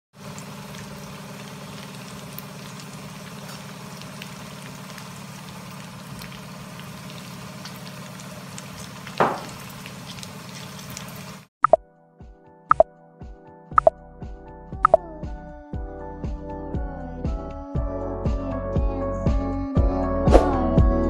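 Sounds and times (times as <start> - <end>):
food sizzling in a pan: 0.2 - 11.5.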